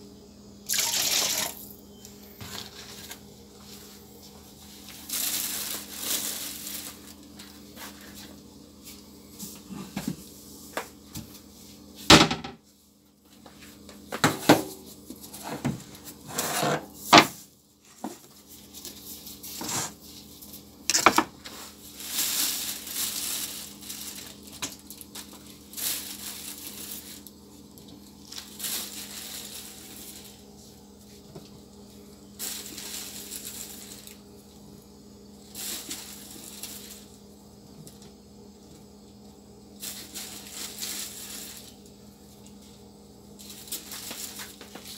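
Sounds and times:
steady low hum: 0:00.0 - 0:44.9
plastic bag rustling: 0:02.4 - 0:09.6, 0:17.8 - 0:34.7, 0:35.4 - 0:37.2, 0:39.7 - 0:44.9.

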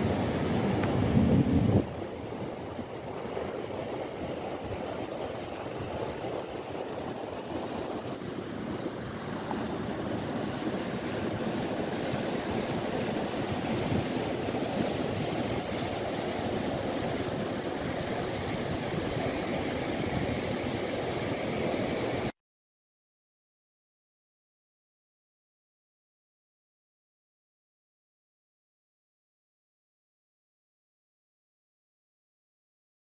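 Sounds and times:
waves breaking on beach: 0:00.0 - 0:22.3
wind: 0:00.0 - 0:22.4.

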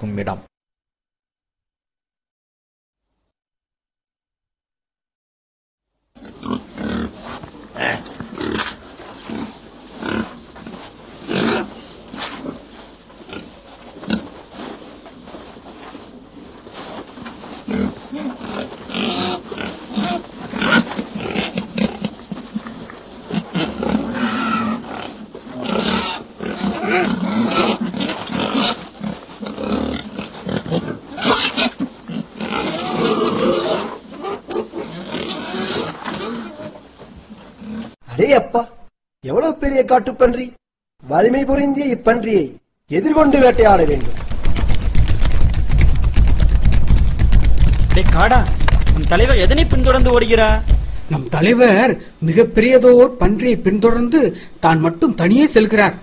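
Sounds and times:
boar grunting: 0:06.2 - 0:12.7, 0:17.6 - 0:36.8.

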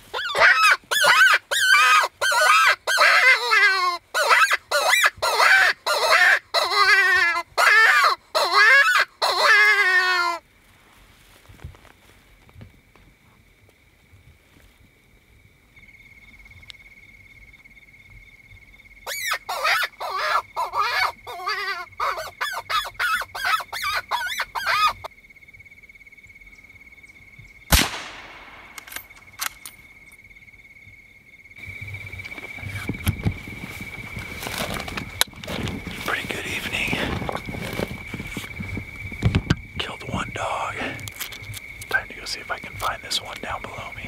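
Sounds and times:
wavering squealing and yelping calls: 0:00.0 - 0:10.4, 0:19.1 - 0:25.1
rifle shot with echo: 0:27.7 - 0:29.2.

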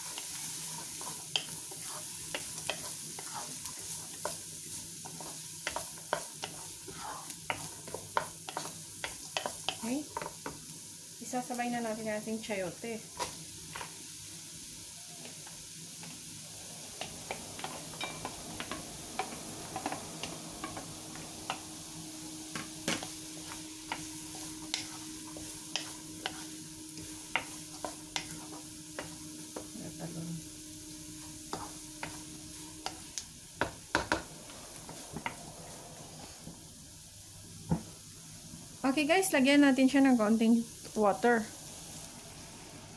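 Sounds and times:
vegetables sizzling in butter: 0:00.0 - 0:42.9
wooden spatula knocking on pan: 0:33.6 - 0:34.3.

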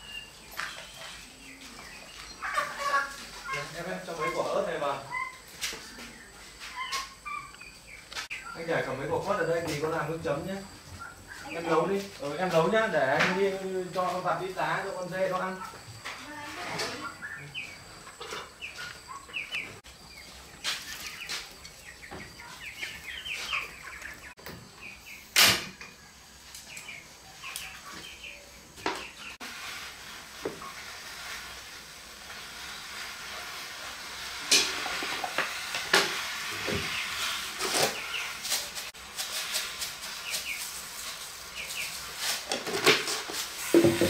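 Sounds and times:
small birds chirping: 0:00.0 - 0:29.4, 0:36.6 - 0:42.4
steady hiss: 0:11.6 - 0:44.0
cooking pots knocking: 0:42.5 - 0:44.0.

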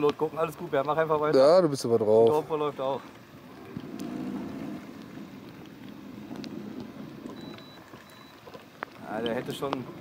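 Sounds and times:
faint clicks: 0:04.8 - 0:09.9.

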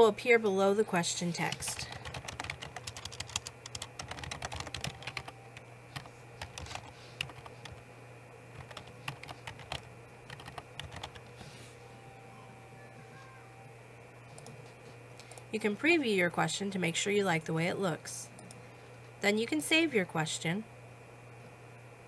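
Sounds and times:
typing on computer keyboard: 0:01.5 - 0:05.4, 0:06.0 - 0:07.8, 0:08.5 - 0:11.2.

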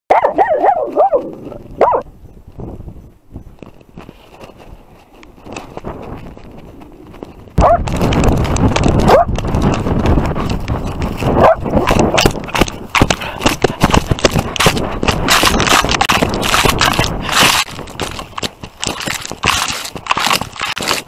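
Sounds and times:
paw thumps: 0:07.6 - 0:08.2, 0:08.8 - 0:18.2.

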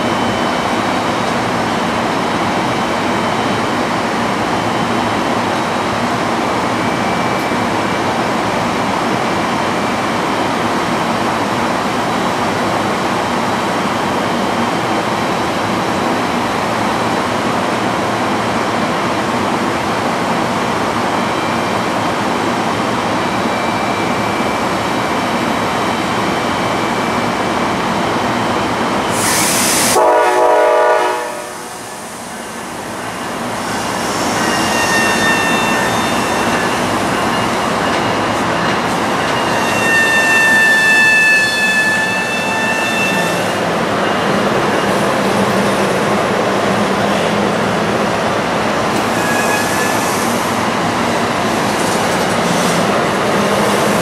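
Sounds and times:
short sharp hiss: 0:29.2 - 0:30.0
train horn blast: 0:30.0 - 0:31.8
high squealing tones: 0:33.6 - 0:43.7.

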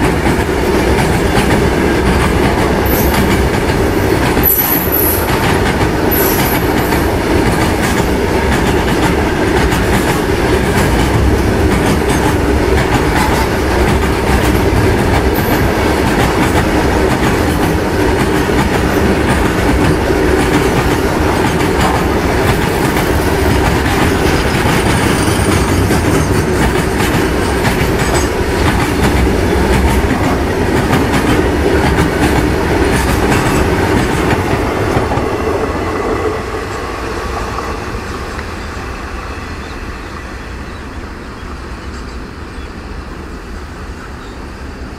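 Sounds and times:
steel wheels rumbling on rail: 0:00.0 - 0:44.9
high wheel squeal: 0:06.1 - 0:06.8, 0:24.9 - 0:26.5.

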